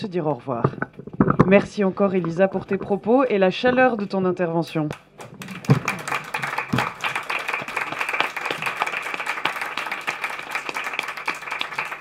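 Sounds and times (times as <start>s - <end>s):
audience applause: 5.2s - 12.0s.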